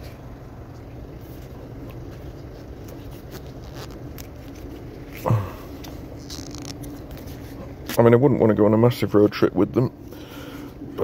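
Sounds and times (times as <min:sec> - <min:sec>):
low background rumble: 0:00.0 - 0:11.0
hands stretching rubber: 0:02.6 - 0:07.4.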